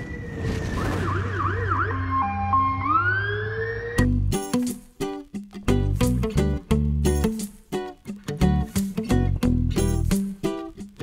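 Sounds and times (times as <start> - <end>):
siren sweeping upward: 0.0 - 4.1
strummed guitar music: 4.0 - 11.0.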